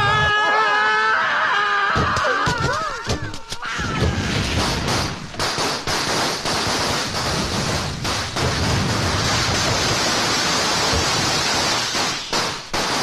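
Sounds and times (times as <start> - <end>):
firecrackers crackling: 4.2 - 13.0.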